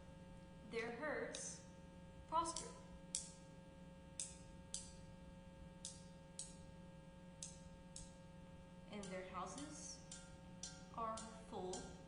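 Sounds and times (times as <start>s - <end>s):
faint steady hum: 0.0s - 12.0s
percussion sticks tapping: 1.3s - 1.6s, 2.4s - 3.4s, 4.2s - 5.1s, 5.8s - 6.7s, 7.4s - 8.3s, 8.9s - 12.0s.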